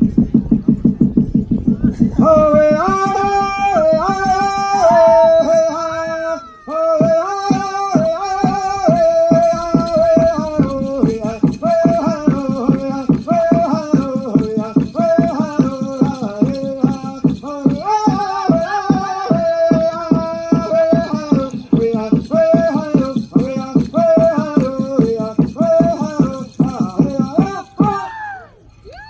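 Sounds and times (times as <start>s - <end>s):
bass drum beat: 0.0s - 28.0s
group singing in high voices: 2.2s - 7.8s.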